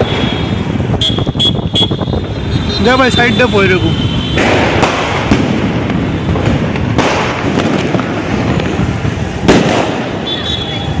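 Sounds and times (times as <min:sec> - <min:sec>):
firecrackers crackling: 0:00.0 - 0:11.0
firecracker bangs: 0:04.0 - 0:11.0.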